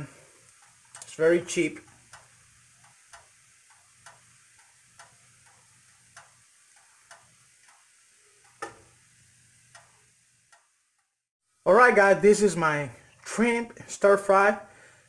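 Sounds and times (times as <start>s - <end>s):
clock ticking: 1.8s - 8.8s, 9.7s - 11.1s.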